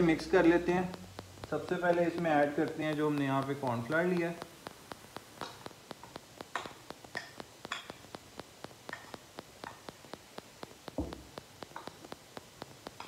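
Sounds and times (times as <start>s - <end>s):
faint even ticking: 0.0s - 13.0s
dull knock: 10.9s - 11.4s.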